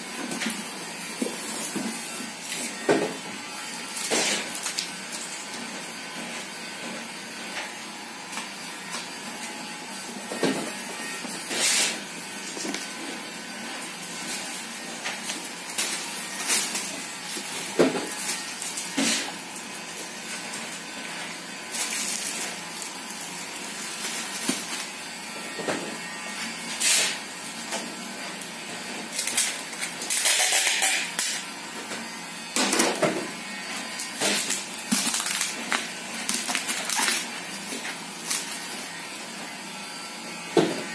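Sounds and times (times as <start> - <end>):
bubble wrap rustling: 34.4 - 37.3.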